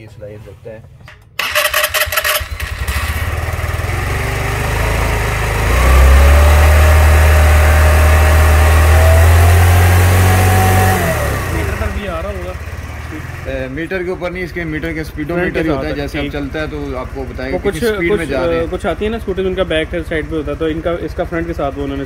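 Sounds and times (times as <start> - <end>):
scooter engine cranking: 1.0 - 13.6
scooter engine running: 1.4 - 22.0.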